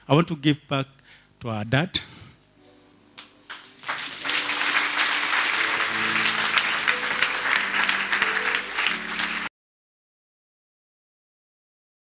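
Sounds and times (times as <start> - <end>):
held instrumental chords: 2.6 - 9.5
congregation clapping: 3.2 - 9.5.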